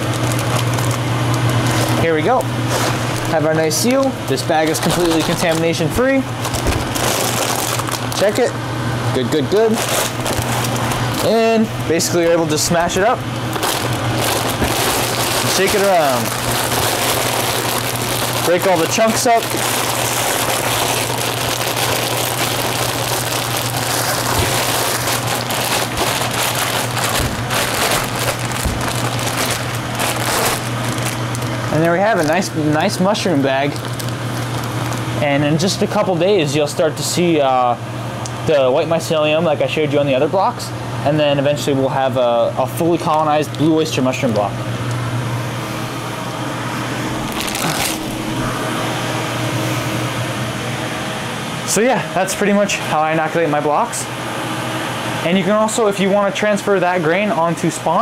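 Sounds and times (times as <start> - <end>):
plastic bag rustling and crinkling: 0.0 - 8.5, 9.3 - 35.2, 47.1 - 48.8
fan humming: 0.0 - 58.0.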